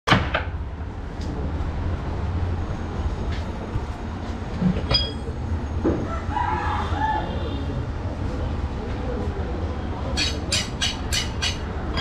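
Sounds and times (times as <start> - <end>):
sharp metallic clink: 4.9 - 5.4.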